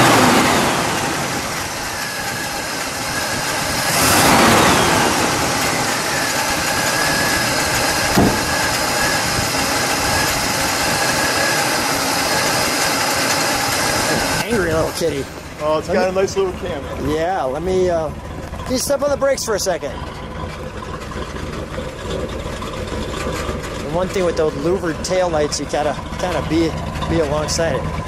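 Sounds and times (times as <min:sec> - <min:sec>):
car engine idling: 0:00.0 - 0:28.0.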